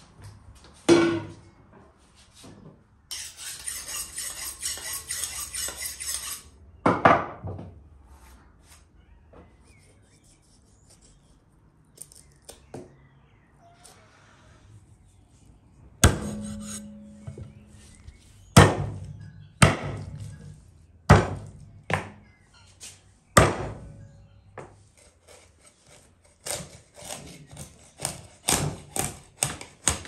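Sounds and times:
metallic scraping: 0:03.1 - 0:06.6, 0:16.0 - 0:19.4.

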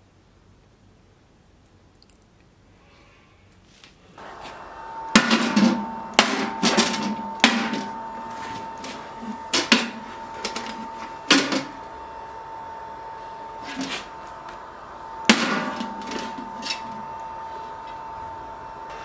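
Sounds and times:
steady high metallic ring: 0:04.7 - 0:14.4.

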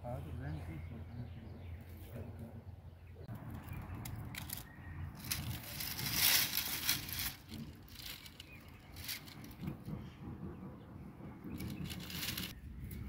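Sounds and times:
dry palm fronds rustling: 0:03.6 - 0:09.7, 0:11.6 - 0:12.6.

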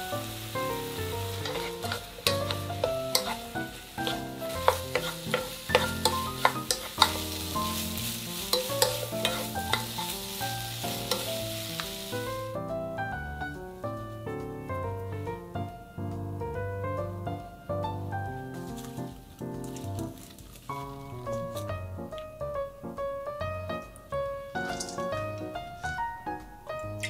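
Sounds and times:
food sizzling in frying pan: 0:00.0 - 0:12.7, 0:24.6 - 0:25.4
spatula scraping pan: 0:00.6 - 0:12.4.

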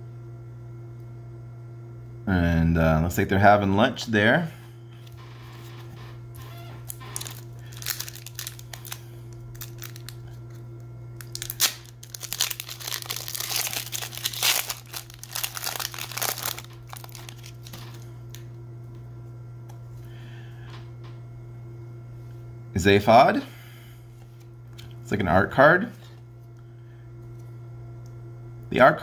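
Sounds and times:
foil pack tearing: 0:05.1 - 0:10.6, 0:11.2 - 0:18.4
foil crinkling: 0:06.4 - 0:10.6, 0:11.2 - 0:18.4
foil pack handling clicks: 0:06.4 - 0:10.6, 0:11.2 - 0:18.5.

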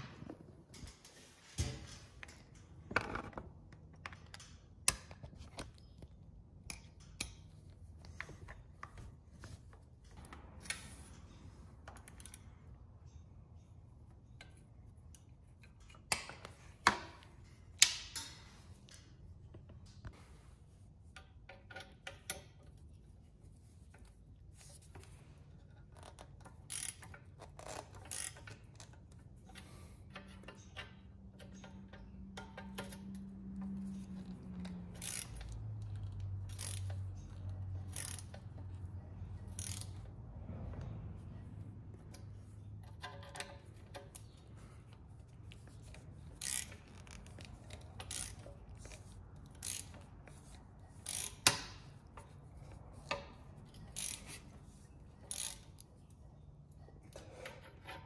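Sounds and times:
socket wrench clicking: 0:25.9 - 0:40.1, 0:45.5 - 0:54.6, 0:55.2 - 0:56.0.

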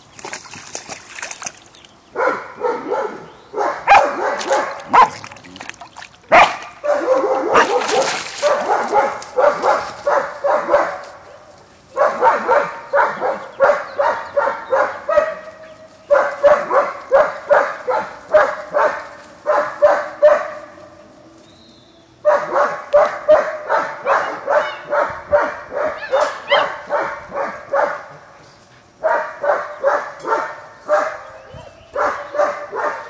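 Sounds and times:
puppy yapping barks: 0:02.2 - 0:05.2, 0:06.3 - 0:11.0, 0:12.0 - 0:15.4, 0:22.3 - 0:28.0, 0:29.0 - 0:31.2, 0:31.9 - 0:33.0.

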